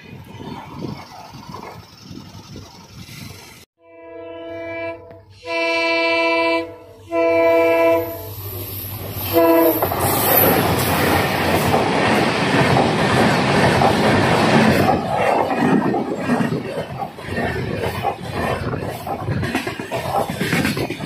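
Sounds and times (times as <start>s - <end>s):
train air horn blasts: 3.8s - 8.4s, 9.2s - 9.9s
train wheels clattering on rails: 9.0s - 21.0s.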